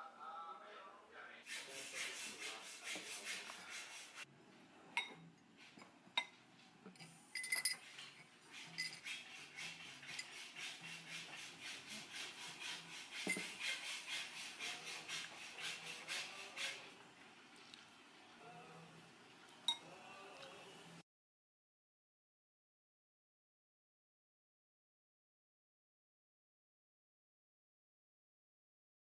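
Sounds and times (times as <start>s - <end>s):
spoon clinking against glass: 5.0s - 5.2s, 7.4s - 7.9s, 8.7s - 9.1s, 19.6s - 19.9s
spoon stirring in glass: 7.0s - 10.7s, 13.1s - 13.7s.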